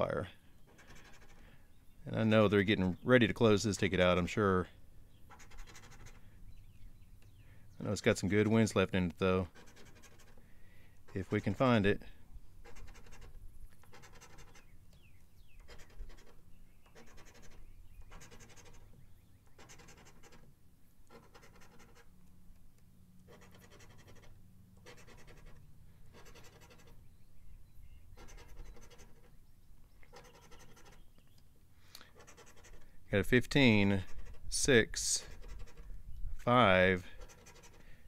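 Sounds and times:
coin scratching lottery ticket: 0:00.7 - 0:01.5, 0:05.3 - 0:06.2, 0:09.5 - 0:10.4, 0:11.1 - 0:12.0, 0:12.6 - 0:14.8, 0:15.6 - 0:20.5, 0:21.1 - 0:22.1, 0:23.2 - 0:27.1, 0:28.1 - 0:29.4, 0:30.1 - 0:31.1, 0:32.0 - 0:35.9, 0:37.0 - 0:38.0.

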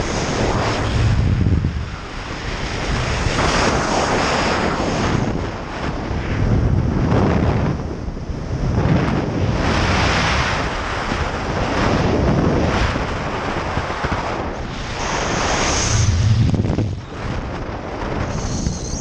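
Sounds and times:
wind rushing over microphone: 0:00.0 - 0:19.0.

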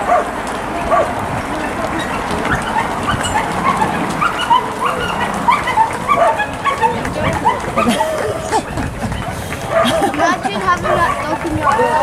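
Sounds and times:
runners' footsteps on road: 0:00.0 - 0:12.0
small dog yapping and whining: 0:02.6 - 0:07.9.

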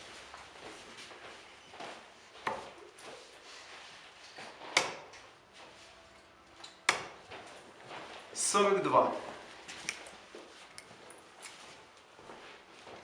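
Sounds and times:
darts thudding into dartboard: 0:06.8 - 0:07.2.

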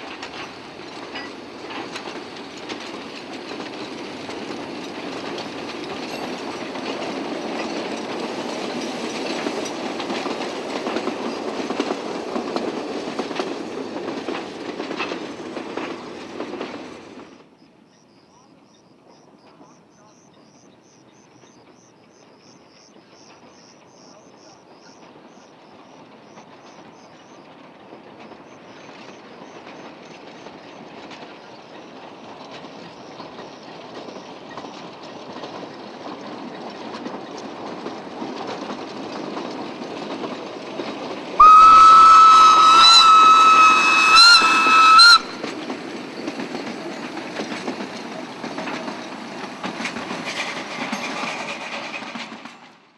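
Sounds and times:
steam train running: 0:00.0 - 0:52.9
steam whistle blast: 0:41.4 - 0:45.4.

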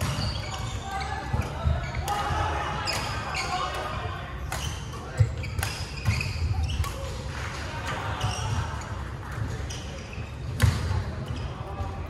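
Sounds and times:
rackets hitting shuttlecocks: 0:01.2 - 0:08.4.

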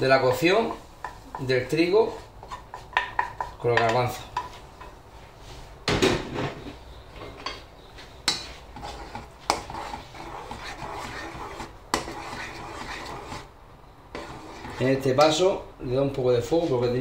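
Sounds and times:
liquid swishing in pot: 0:00.0 - 0:03.7, 0:08.6 - 0:13.5, 0:14.1 - 0:15.2
spoon knocking against pot: 0:02.7 - 0:04.9.

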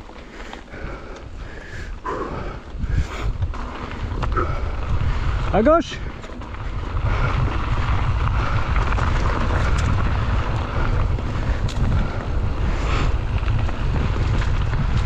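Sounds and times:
bike riding rumble on trail: 0:00.0 - 0:15.0
wind buffeting microphone: 0:00.0 - 0:15.0
sharp clicks and rattles: 0:03.3 - 0:15.0.

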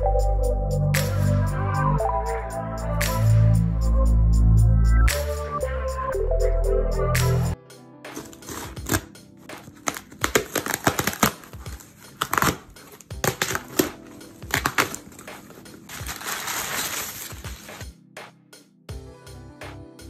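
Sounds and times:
scissors cutting packing tape: 0:08.1 - 0:17.8
paper packing crinkling: 0:08.1 - 0:17.9.

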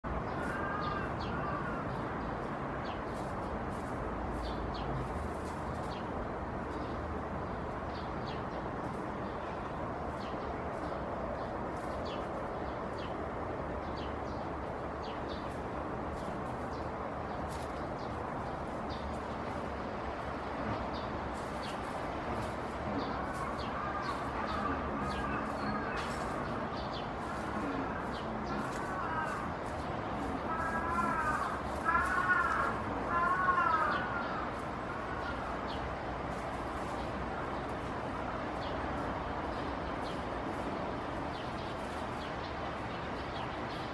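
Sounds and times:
outdoor background hiss: 0:00.0 - 0:43.9
rustles in dry leaf litter: 0:00.1 - 0:43.9
bird calling: 0:22.4 - 0:35.8.

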